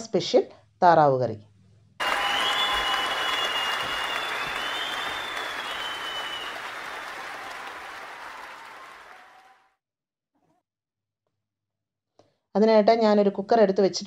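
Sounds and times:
crowd applause: 0:02.0 - 0:09.8.

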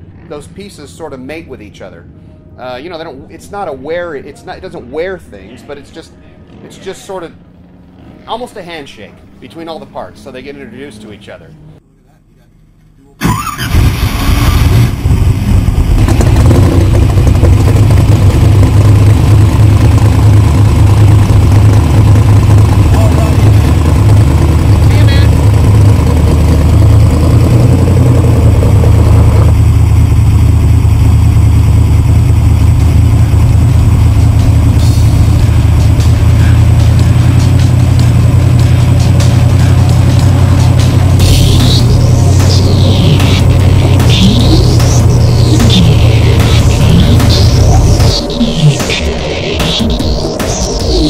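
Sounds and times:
drag car engine idling: 0:14.9 - 0:51.0.

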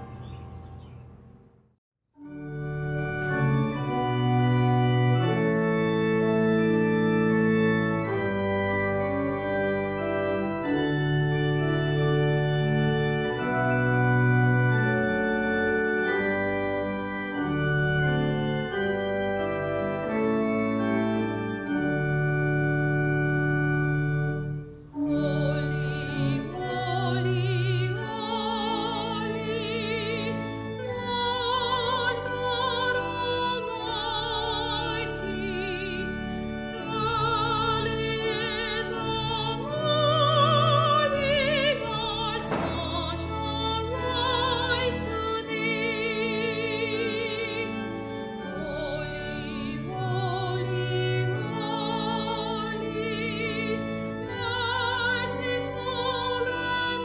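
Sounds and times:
organ playing slow chords: 0:00.0 - 0:01.5, 0:02.2 - 0:57.0
woman singing classically: 0:25.0 - 0:36.1.

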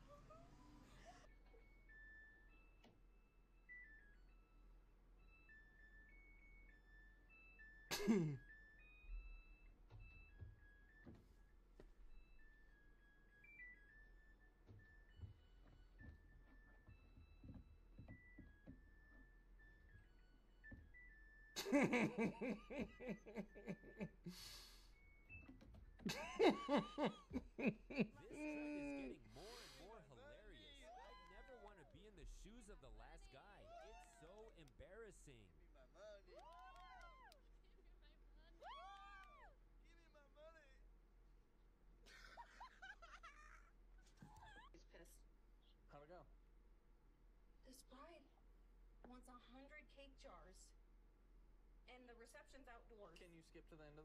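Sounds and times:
washing machine beeping tune: 0:00.6 - 0:31.7
man laughing: 0:07.9 - 0:08.4, 0:21.6 - 0:24.4, 0:26.1 - 0:29.2, 0:42.1 - 0:43.7.

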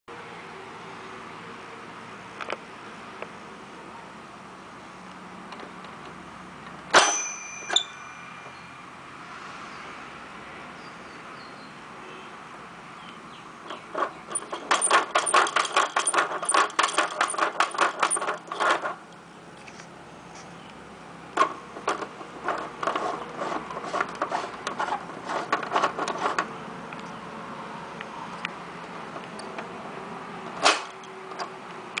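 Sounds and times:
plastic toy clicking and rattling: 0:13.7 - 0:19.0.

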